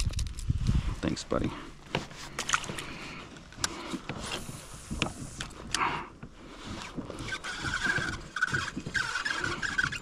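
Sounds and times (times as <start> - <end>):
fishing reel whirring: 7.2 - 10.0.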